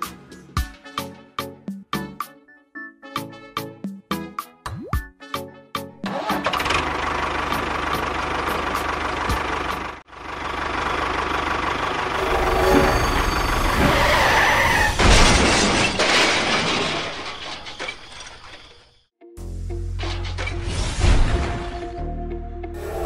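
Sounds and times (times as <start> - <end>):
vehicle engine rumbling: 6.4 - 18.9.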